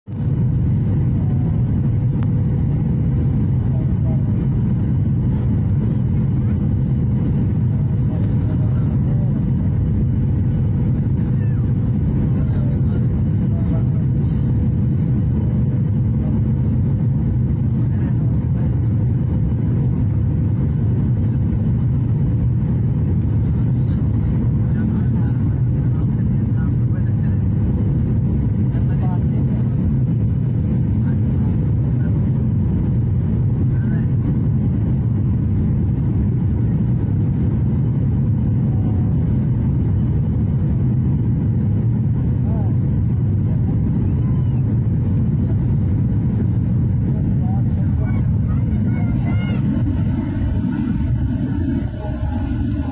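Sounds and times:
airliner engine rumble in cabin: 0:00.0 - 0:52.9
rushing air: 0:44.9 - 0:52.9.

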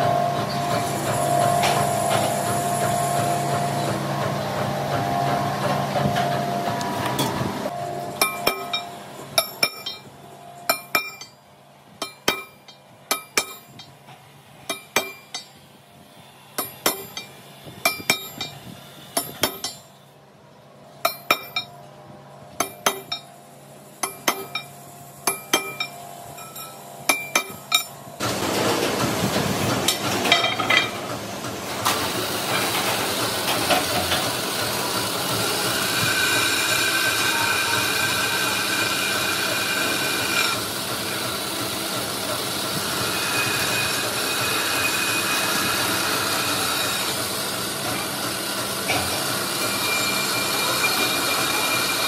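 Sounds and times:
machine running: 0:00.0 - 0:11.4, 0:21.0 - 0:52.0
hammer striking metal: 0:07.1 - 0:10.1, 0:10.7 - 0:11.4, 0:12.0 - 0:14.0, 0:14.6 - 0:15.6, 0:16.6 - 0:18.6, 0:19.2 - 0:19.9, 0:21.0 - 0:21.8, 0:22.5 - 0:23.3, 0:24.0 - 0:28.0, 0:29.9 - 0:31.0.

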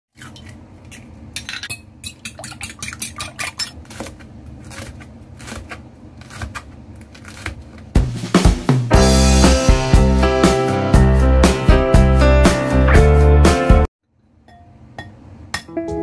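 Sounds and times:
knife slicing pepper: 0:02.6 - 0:08.2
clinks against glass bowl: 0:14.4 - 0:15.7.

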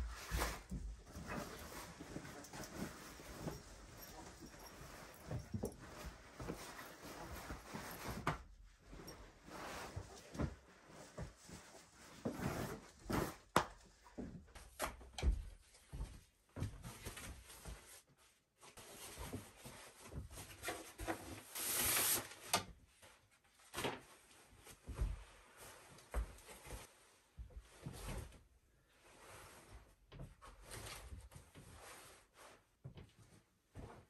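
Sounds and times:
nylon rustling and swishing: 0:00.0 - 0:13.4.

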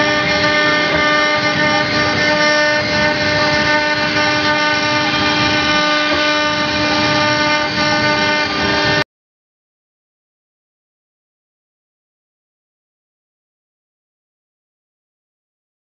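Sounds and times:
router spindle whining: 0:00.0 - 0:09.0.

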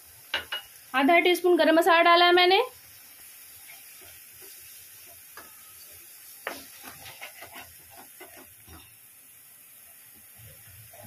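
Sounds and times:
faint sizzle of frying paste: 0:00.0 - 0:11.0
spatula scraping pan: 0:03.6 - 0:09.0.

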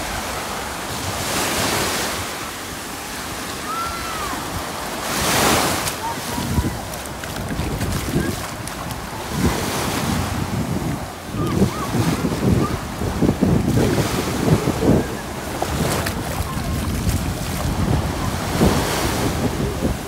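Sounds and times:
small waves washing over sand: 0:00.0 - 0:20.0
wind buffeting microphone: 0:04.0 - 0:20.0.

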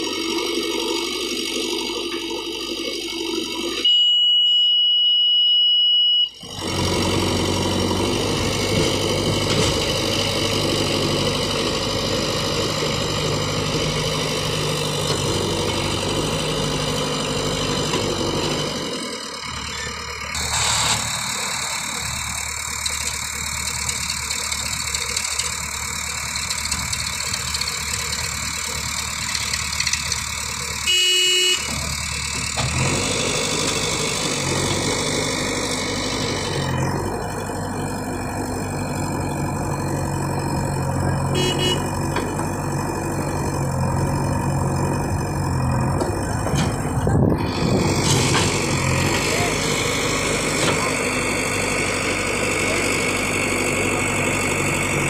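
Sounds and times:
backhoe diesel engine running: 0:00.0 - 0:55.0
short horn toot: 0:30.8 - 0:31.8, 0:41.3 - 0:42.0.

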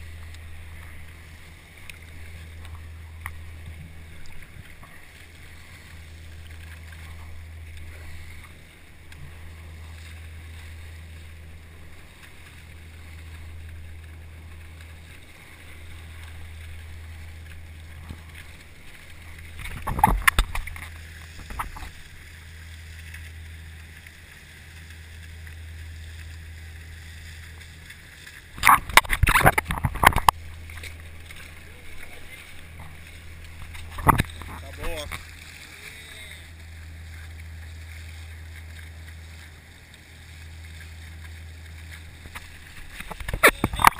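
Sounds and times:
low engine drone: 0:00.0 - 0:43.9
water rushing along a hull: 0:00.0 - 0:43.9
water splashes hitting camera: 0:00.0 - 0:43.9.

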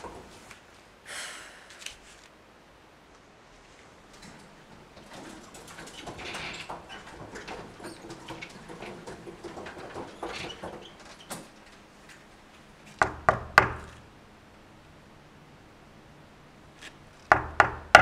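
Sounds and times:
trolley rattling and clinking: 0:00.0 - 0:00.5, 0:04.0 - 0:12.1
knocks on a wooden door: 0:13.0 - 0:14.0, 0:17.3 - 0:18.0.

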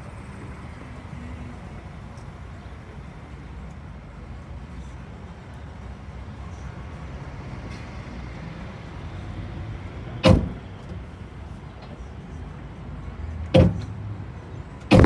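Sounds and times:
bus engine rumble: 0:00.0 - 0:15.0
loud sharp clunks: 0:10.2 - 0:10.7, 0:13.5 - 0:14.0.

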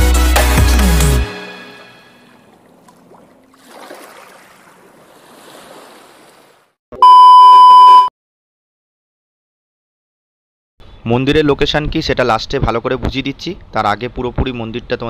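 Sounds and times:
loud steady test-tone beep: 0:07.0 - 0:08.1.

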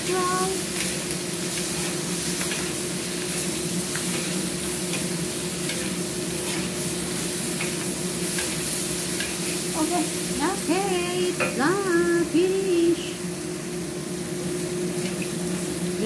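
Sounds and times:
food sizzling in a wok: 0:00.0 - 0:16.0
steady low hum: 0:00.0 - 0:16.0
spatula scraping a wok: 0:00.7 - 0:09.8.

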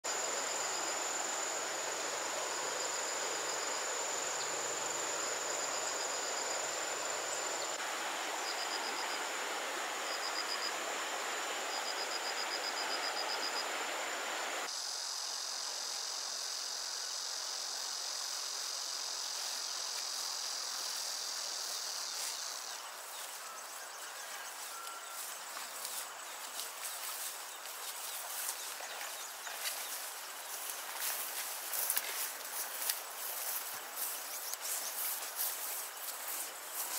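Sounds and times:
insects buzzing and chirping: 0:00.0 - 0:36.9
loud high insect drone: 0:00.1 - 0:36.9
footsteps through grass: 0:18.2 - 0:36.9.

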